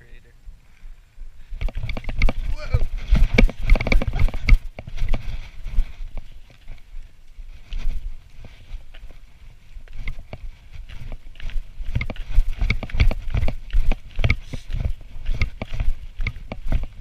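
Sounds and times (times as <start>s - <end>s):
footsteps on snow: 0.6s - 17.0s.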